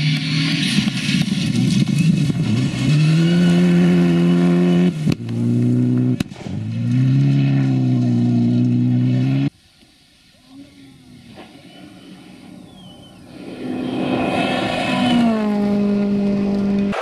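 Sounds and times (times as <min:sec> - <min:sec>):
rally car engine at high revs: 0:00.0 - 0:09.5, 0:14.2 - 0:17.0.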